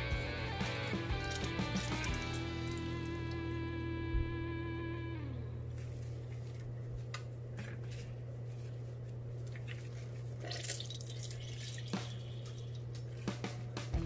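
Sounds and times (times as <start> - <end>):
juice dripping into glass: 0.0 - 3.7, 9.6 - 12.9.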